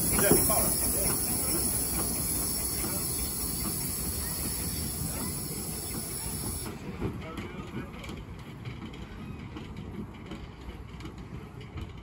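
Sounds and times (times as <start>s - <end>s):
steam hiss: 0.0s - 7.1s
locomotive running rumble: 0.0s - 12.0s.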